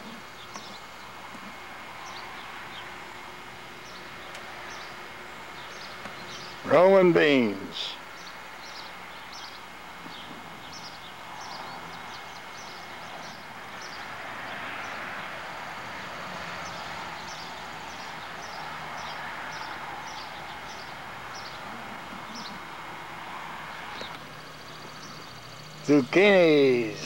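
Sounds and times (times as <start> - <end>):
small bird chirping: 8.0 - 14.0, 16.6 - 22.7, 23.9 - 25.9.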